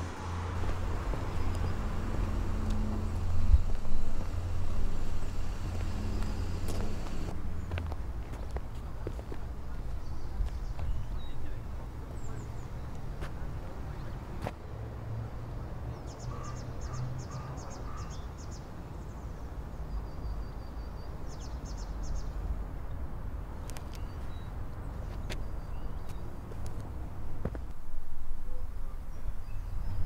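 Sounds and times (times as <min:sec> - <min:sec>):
steady low rumble: 0:00.0 - 0:11.8
small birds chirping: 0:00.7 - 0:07.8, 0:08.9 - 0:13.0, 0:15.9 - 0:22.5, 0:23.6 - 0:27.0.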